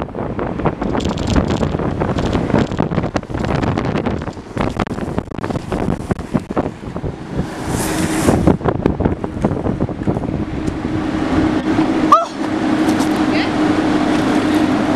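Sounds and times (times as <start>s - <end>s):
longboard wheels rumbling on asphalt: 0.0s - 14.9s
wind noise on microphone: 0.0s - 14.9s.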